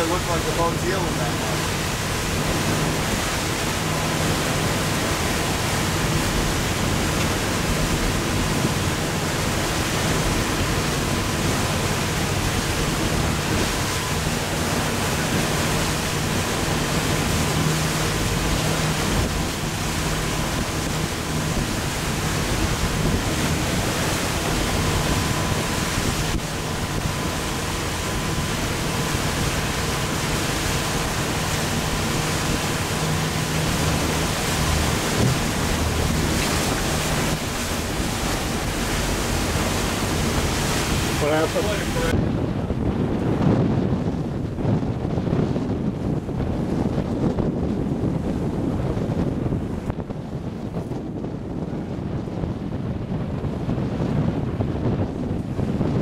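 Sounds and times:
water rushing past boat: 0.0s - 56.0s
wind rushing: 0.0s - 56.0s.

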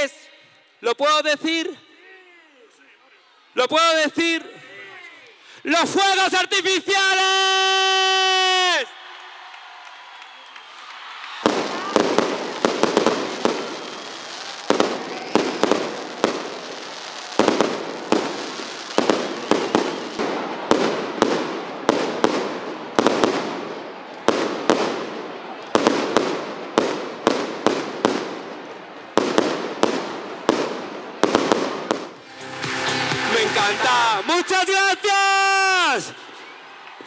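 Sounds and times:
firework bangs: 10.4s - 32.3s.

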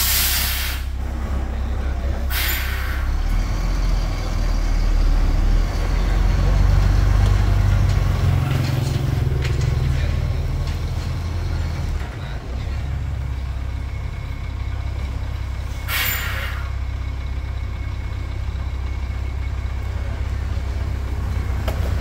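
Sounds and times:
air brake hiss: 0.0s - 1.0s, 2.3s - 3.2s, 15.7s - 16.8s
truck diesel engine rumbling: 0.0s - 22.0s.

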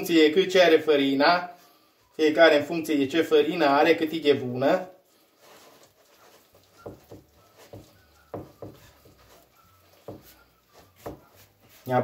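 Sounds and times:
hands kneading dough: 5.2s - 12.0s.

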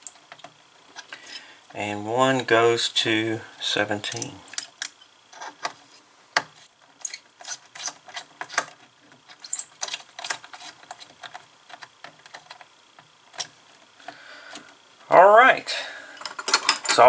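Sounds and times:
screwdriver clicking and scraping: 6.6s - 8.7s, 9.3s - 12.6s.

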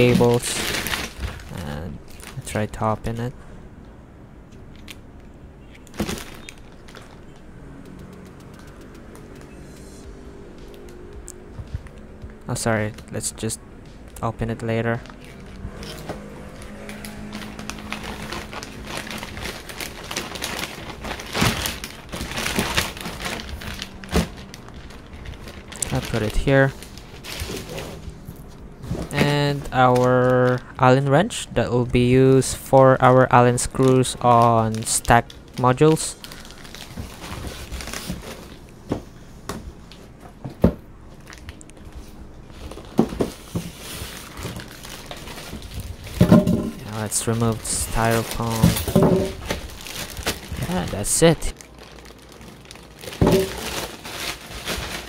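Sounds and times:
plastic bag crinkling: 0.0s - 3.3s, 5.7s - 9.4s, 14.9s - 30.8s, 33.3s - 38.7s, 41.2s - 55.0s
cardboard and styrofoam scraping: 25.9s - 28.1s, 42.7s - 50.9s, 53.0s - 55.0s.

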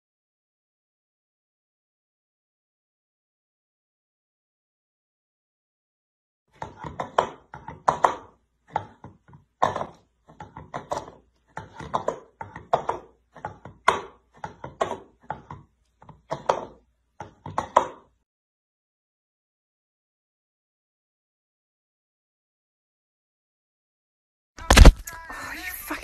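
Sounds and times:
knocks and taps: 6.6s - 18.2s.

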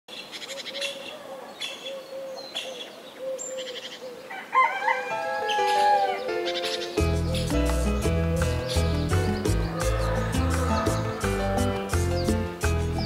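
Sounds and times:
birds chirping: 0.1s - 13.0s
rooster crowing: 4.3s - 6.3s, 9.7s - 11.6s
music with plucked notes: 5.4s - 13.0s.

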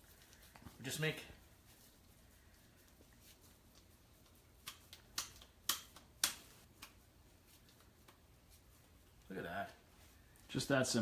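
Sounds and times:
faint room hum: 0.0s - 11.0s
utensils clicking in a kitchen: 4.2s - 7.0s.

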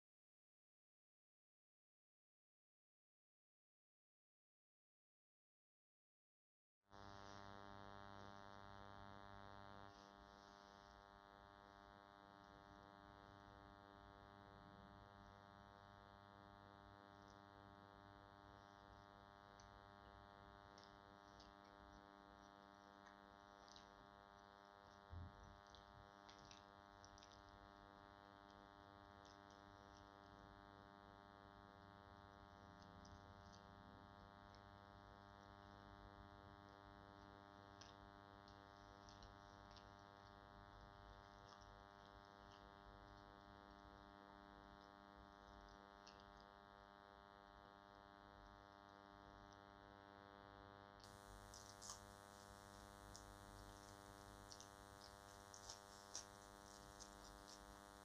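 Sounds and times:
faint electrical buzz: 6.9s - 58.0s.

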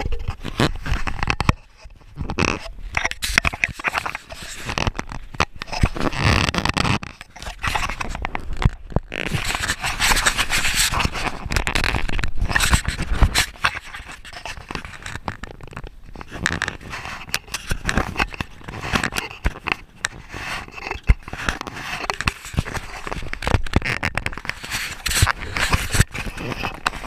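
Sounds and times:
camera rubbing against clothing: 0.0s - 27.0s.

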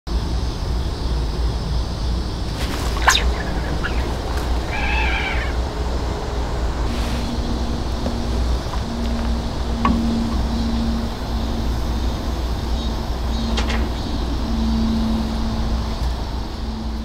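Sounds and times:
cat meowing: 3.0s - 5.6s.

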